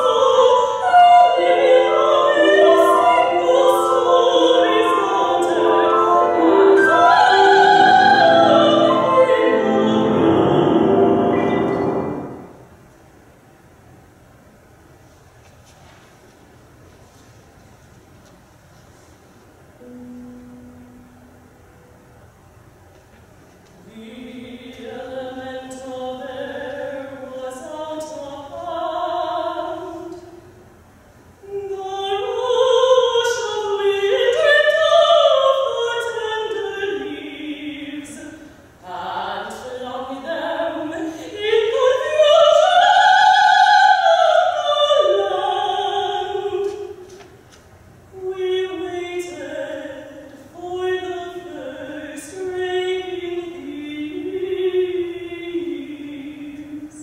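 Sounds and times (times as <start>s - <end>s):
woman singing operatically: 0.0s - 12.5s, 23.8s - 30.3s, 31.4s - 47.1s, 48.1s - 57.0s.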